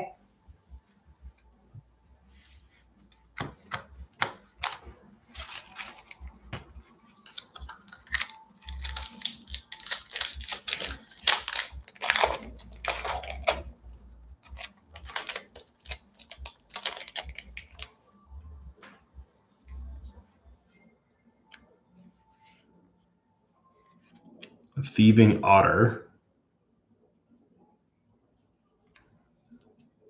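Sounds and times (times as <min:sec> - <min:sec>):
foil wrapper crinkling and tearing: 0:04.2 - 0:06.3, 0:07.1 - 0:13.8, 0:14.4 - 0:17.9.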